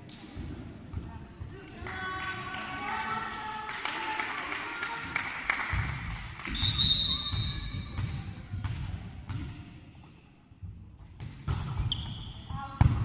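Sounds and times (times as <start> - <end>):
referee's whistle: 6.5 - 7.7
ball bouncing on wooden floor: 7.3 - 9.6.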